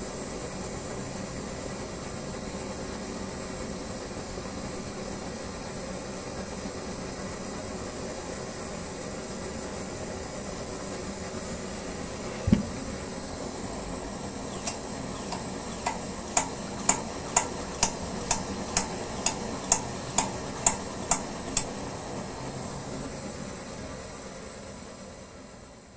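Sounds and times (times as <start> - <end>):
stove burner hissing: 0.0 - 25.9
stove pump clicking: 12.3 - 12.9, 14.4 - 21.9
thump: 12.4 - 12.8.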